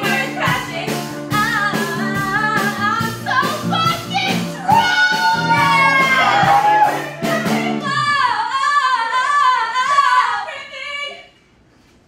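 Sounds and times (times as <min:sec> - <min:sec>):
instrumental accompaniment: 0:00.0 - 0:08.2
women belting a show tune: 0:00.0 - 0:11.3.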